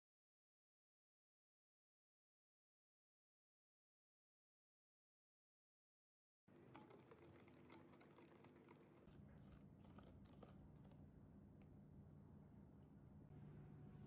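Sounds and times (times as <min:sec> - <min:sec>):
low steady hum: 0:06.5 - 0:14.0
whisk scraping glass bowl: 0:06.6 - 0:11.0.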